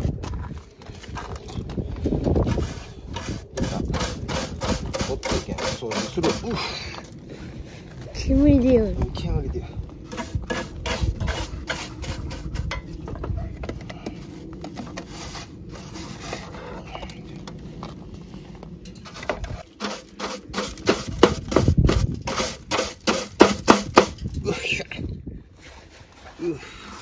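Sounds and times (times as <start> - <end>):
rubbing and scraping: 0.0 - 6.7, 10.1 - 24.2
low rumble: 6.3 - 19.8.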